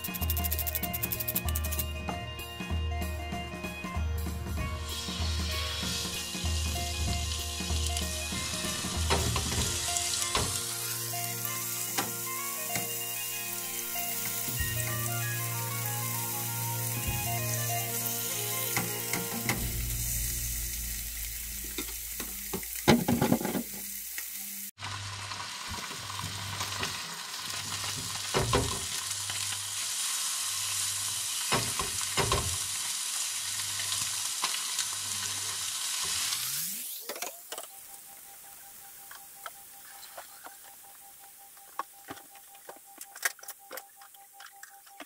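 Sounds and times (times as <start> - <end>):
background music: 0.0 - 22.1
fish sizzling in a pan: 4.8 - 37.1.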